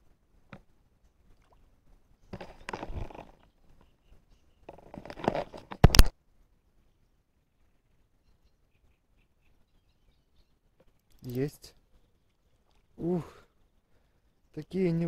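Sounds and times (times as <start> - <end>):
rustling and scraping of fishing rod: 0.4 - 6.1, 10.8 - 13.8.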